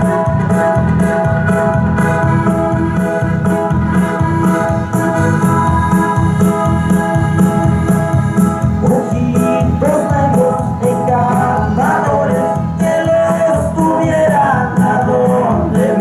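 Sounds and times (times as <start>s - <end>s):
electronic organ chords: 0.0s - 16.0s
pulsing bass line: 0.0s - 16.0s.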